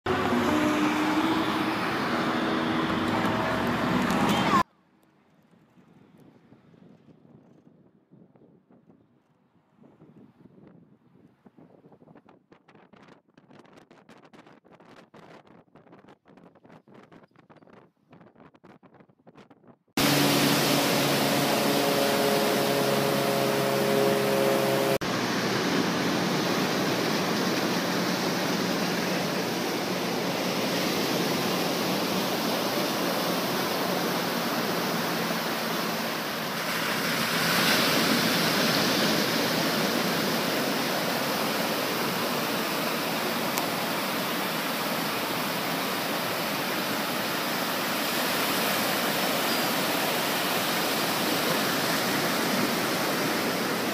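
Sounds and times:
multi-tone hum: 0:00.1 - 0:04.6, 0:20.0 - 0:53.9
waves breaking on beach: 0:00.1 - 0:04.6, 0:20.0 - 0:53.9.

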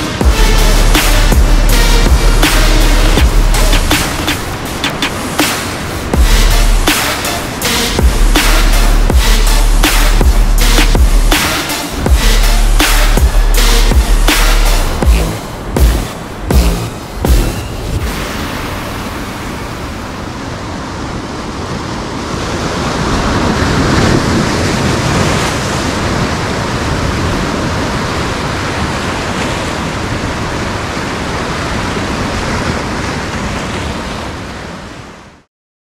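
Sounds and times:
surf breaking on rocks: 0:03.8 - 0:09.1.

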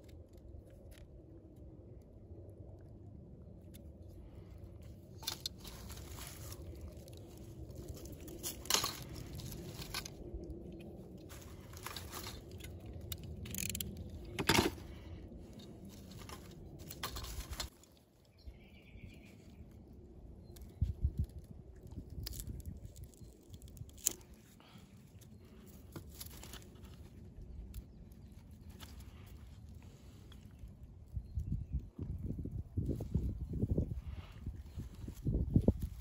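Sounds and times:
steady low rumble: 0:00.0 - 0:36.0
woody crunches and clicks: 0:05.2 - 0:17.8, 0:20.4 - 0:24.5.

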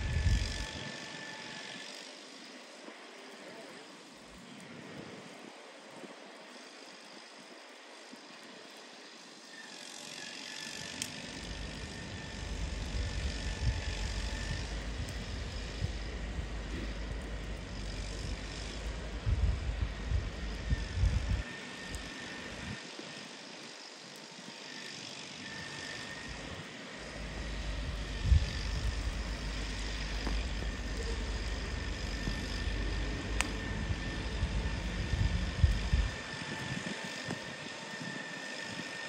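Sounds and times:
distant tractor engine drone: 0:00.0 - 0:39.0
low rumble: 0:27.3 - 0:36.2.

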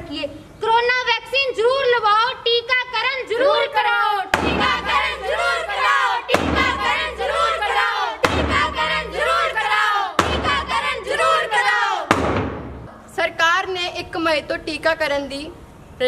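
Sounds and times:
drum beats: 0:04.4 - 0:12.9.

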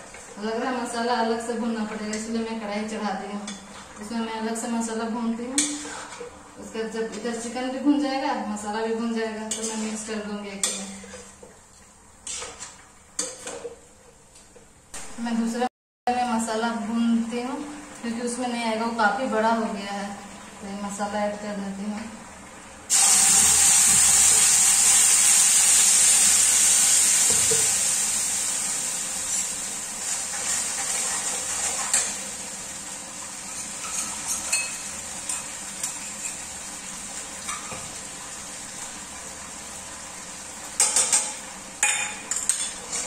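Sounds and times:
spoon scraping pan: 0:05.6 - 0:06.4, 0:09.4 - 0:11.5, 0:12.2 - 0:13.6
paste sizzling in hot oil: 0:22.9 - 0:38.8.

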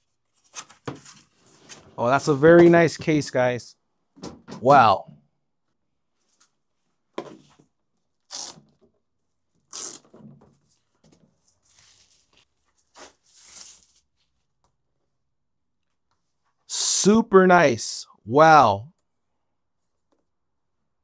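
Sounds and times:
tearing rustling wrapping: 0:08.3 - 0:08.6, 0:09.7 - 0:10.0.

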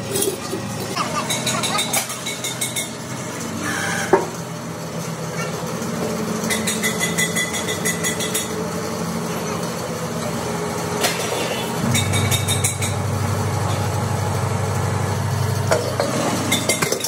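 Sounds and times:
hydraulic press pump humming: 0:05.6 - 0:17.0.

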